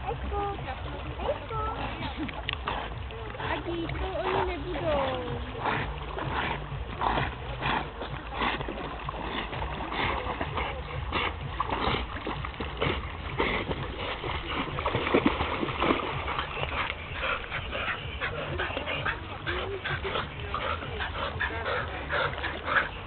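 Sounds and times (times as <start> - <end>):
dogs splashing through water: 0.0 - 23.0
dog noises: 12.8 - 23.0.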